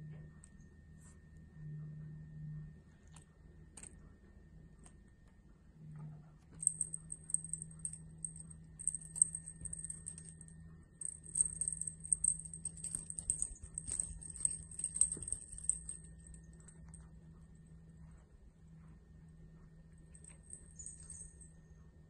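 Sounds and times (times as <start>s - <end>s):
kitten clawing a feather toy: 6.6s - 10.4s, 11.0s - 16.9s.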